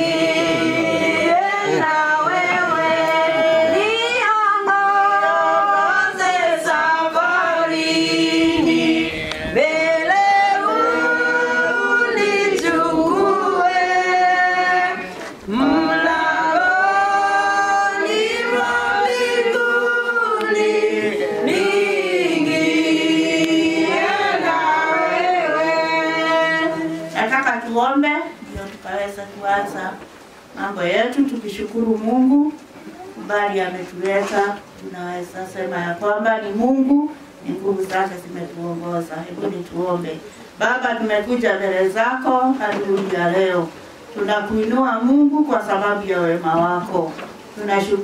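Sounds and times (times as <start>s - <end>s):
group singing unaccompanied: 0.0s - 27.6s, 40.7s - 48.0s.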